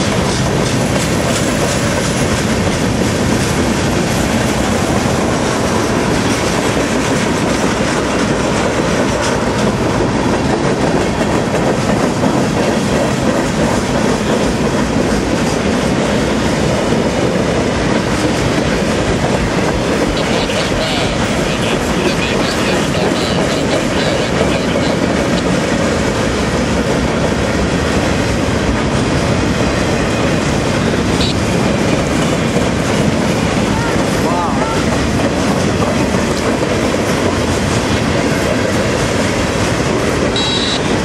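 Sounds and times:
train wheels on rails: 0.0s - 41.0s.

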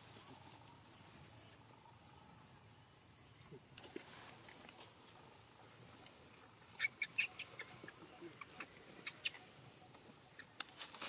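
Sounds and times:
animal chirps: 6.8s - 10.6s.

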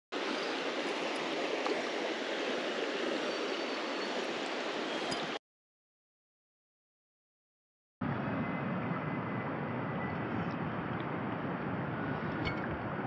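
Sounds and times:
creek water running over branches: 0.1s - 5.4s.

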